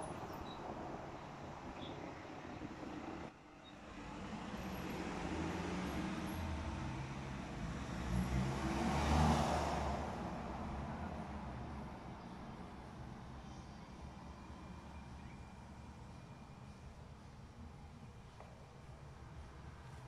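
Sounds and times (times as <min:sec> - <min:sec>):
vehicle driving past: 0:04.2 - 0:11.8.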